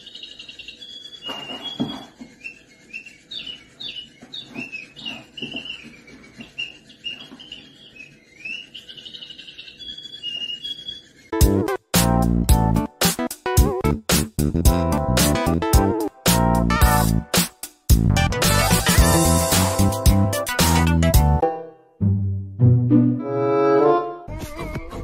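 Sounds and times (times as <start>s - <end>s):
sparrow chirping: 0.0s - 11.4s.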